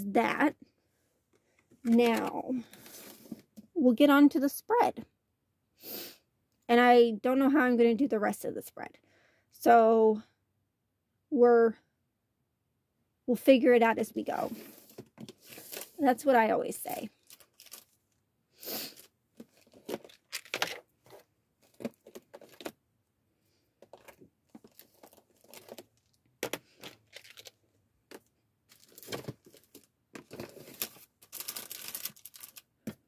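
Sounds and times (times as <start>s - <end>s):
paper rustling and crinkling: 1.9s - 3.4s, 14.4s - 16.0s, 17.2s - 18.0s, 19.4s - 22.7s, 23.8s - 32.7s.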